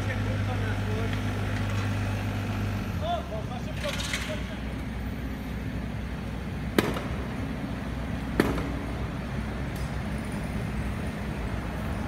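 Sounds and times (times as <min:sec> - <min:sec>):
diesel engine idling: 0:00.0 - 0:12.0
street traffic: 0:00.0 - 0:12.0.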